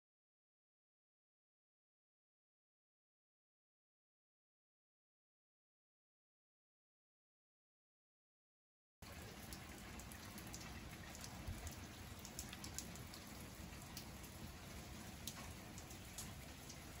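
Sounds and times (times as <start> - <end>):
raindrops ticking: 9.0 - 17.0.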